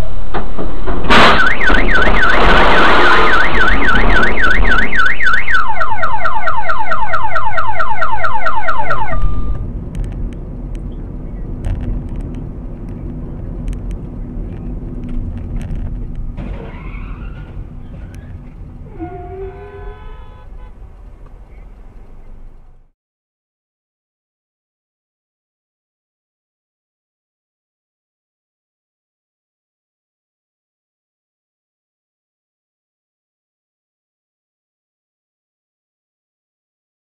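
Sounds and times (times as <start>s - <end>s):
sudden loud hit: 0.3s - 5.2s
car alarm wailing: 1.1s - 9.6s, 18.9s - 20.5s
road and engine rumble in car: 9.2s - 22.9s.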